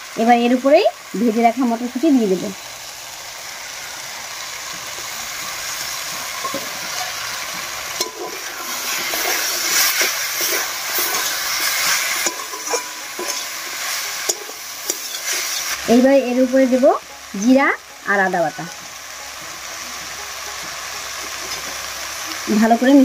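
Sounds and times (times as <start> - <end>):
vegetables sizzling in a pan: 0.0 - 23.0
metal spatula scraping a pan: 4.9 - 16.1.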